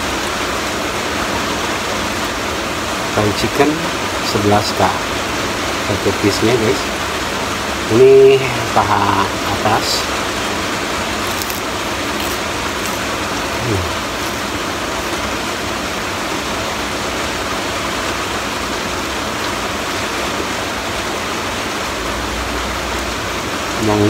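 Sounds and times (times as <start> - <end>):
heavy rain hissing: 0.0 - 24.0
short falling vocal sound: 13.6 - 14.2.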